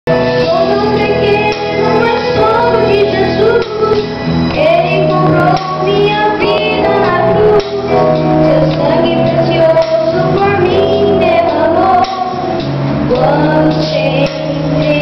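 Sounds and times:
instrumental accompaniment: 0.1 - 15.0
child singing into a microphone: 0.3 - 15.0.

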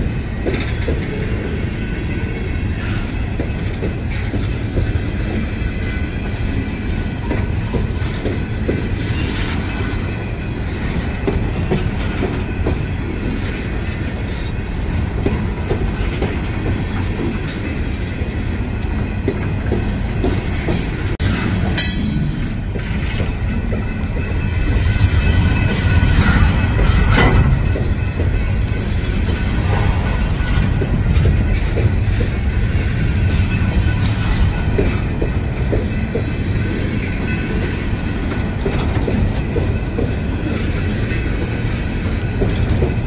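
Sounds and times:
freight train wheels rumbling: 0.0 - 43.0.

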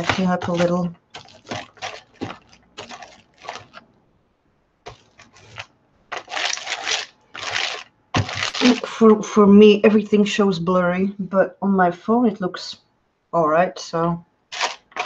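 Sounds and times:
brayer rolling over paper: 0.0 - 3.8.

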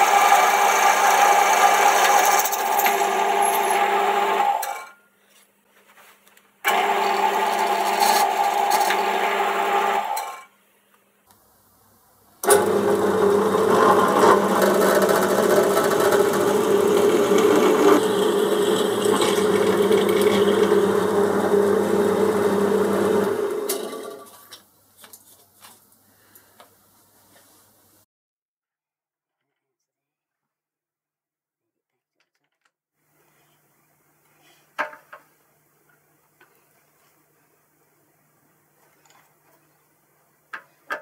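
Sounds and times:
drill cutting into steel: 0.0 - 4.9, 6.7 - 10.5, 12.4 - 24.0.

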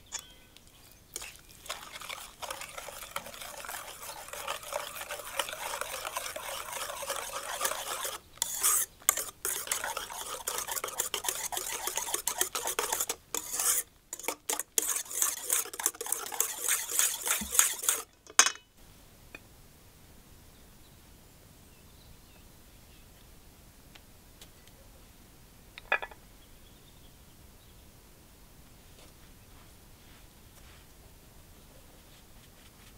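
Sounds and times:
whisk clinking and scraping a bowl: 0.1 - 18.1.

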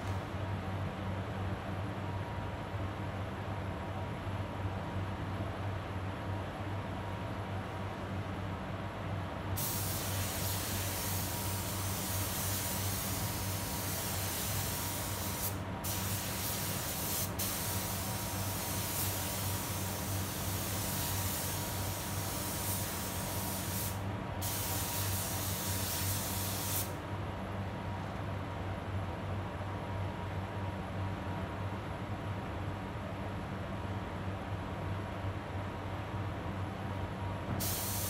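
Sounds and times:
spray gun hissing: 9.6 - 26.9, 37.6 - 38.0.

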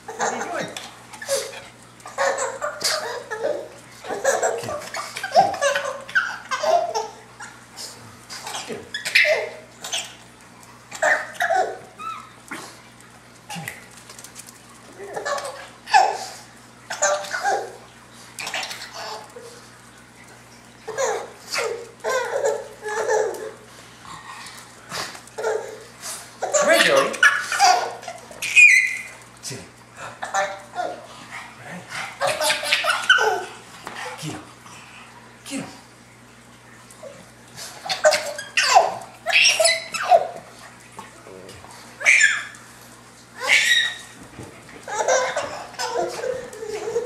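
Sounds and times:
baby laughing: 0.1 - 7.6, 8.4 - 10.2, 10.9 - 12.2, 15.0 - 17.8, 18.4 - 19.6, 20.9 - 23.6, 25.4 - 29.1, 30.2 - 31.1, 32.1 - 33.6, 37.8 - 40.4, 42.0 - 42.6, 43.4 - 44.2, 44.8 - 47.0.

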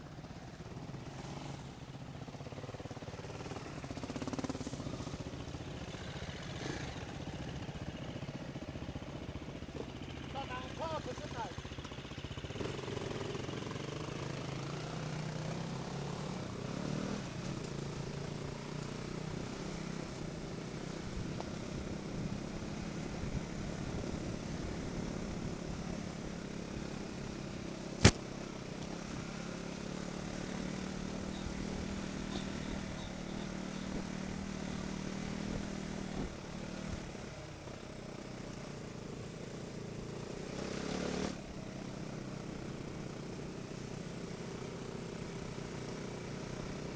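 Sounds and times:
motorcycle engine running: 0.0 - 46.9
sharp knock: 28.0 - 28.2.

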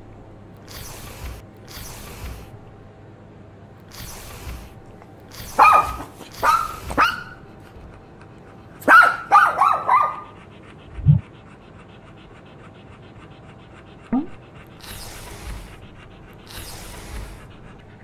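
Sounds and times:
dog barking and yipping: 5.3 - 7.6, 8.8 - 10.4.

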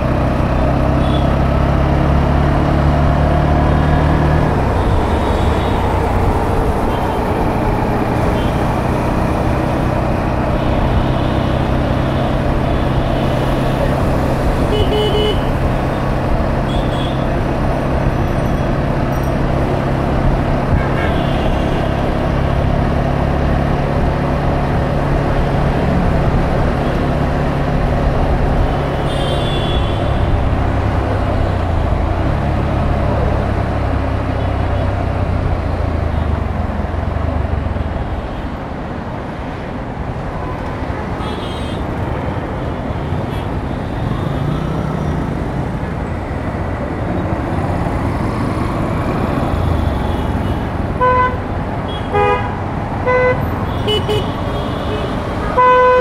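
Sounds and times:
vehicle horn toots: 53.1 - 56.0.

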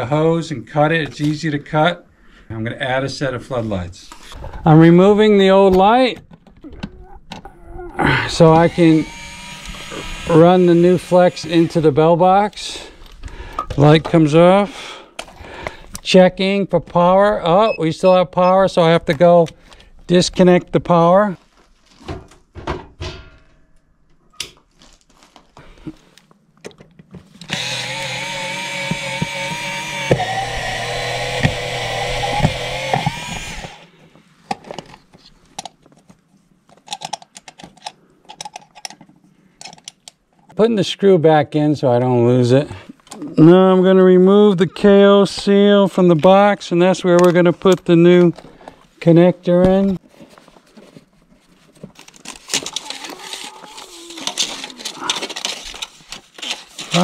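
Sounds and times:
cordless screwdriver running: 8.4 - 12.0, 27.4 - 33.9.

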